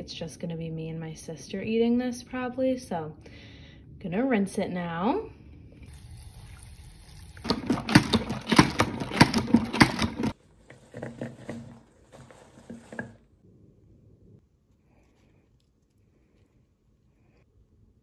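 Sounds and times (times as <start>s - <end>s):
running tap water: 5.8s - 9.1s
salad spinner rattling: 7.1s - 11.7s.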